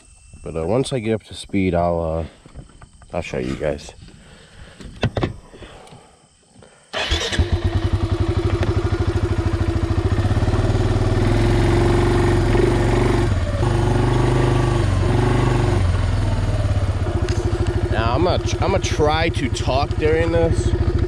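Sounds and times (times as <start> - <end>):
atv engine starting and idling: 6.9 - 21.0.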